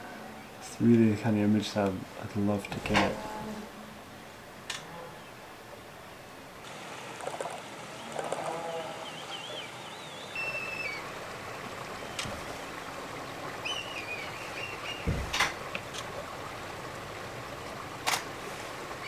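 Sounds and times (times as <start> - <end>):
wind: 0.0 - 19.0
lower bird calls: 7.1 - 17.9
birds whistling calls: 7.2 - 15.2.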